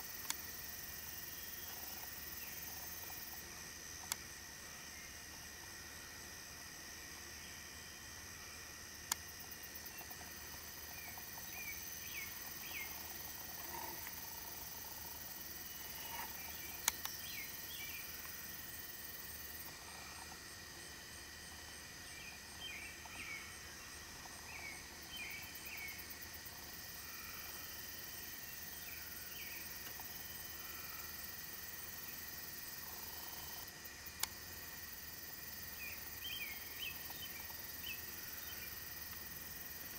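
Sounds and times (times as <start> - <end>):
crickets droning: 0.0 - 39.9
sharp click: 16.8 - 17.2.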